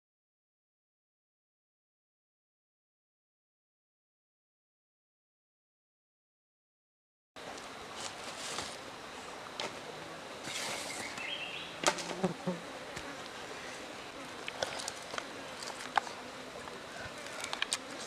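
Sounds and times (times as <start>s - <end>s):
insects buzzing: 7.4s - 18.0s
grilled chicken snapping and crackling: 12.9s - 18.0s.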